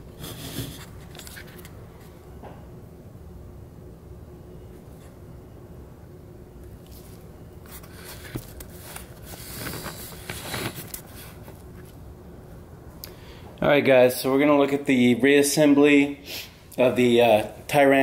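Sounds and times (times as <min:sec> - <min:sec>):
rustling and scraping handling noises: 0:00.0 - 0:02.2, 0:06.8 - 0:12.0
low room hum: 0:00.0 - 0:18.0.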